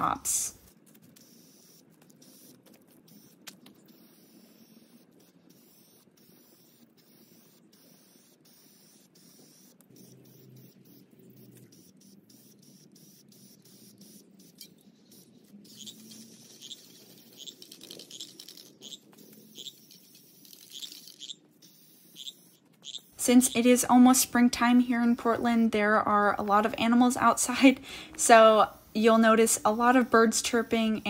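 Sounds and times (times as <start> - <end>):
aerosol spray can hissing: 0.0 - 24.4, 27.5 - 31.0
bird chirping: 9.9 - 25.4.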